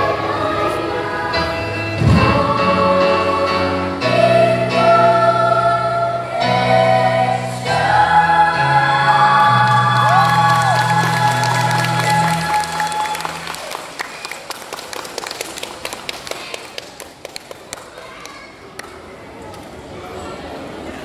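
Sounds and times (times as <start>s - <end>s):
children's choir singing: 0.0s - 13.5s
low thud: 2.0s - 2.8s.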